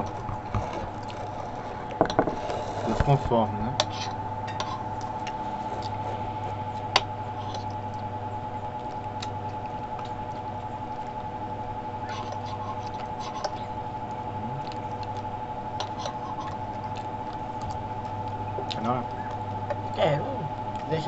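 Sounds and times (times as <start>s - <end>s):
steady hum: 0.0s - 21.0s
chewing and sucking: 14.4s - 20.0s.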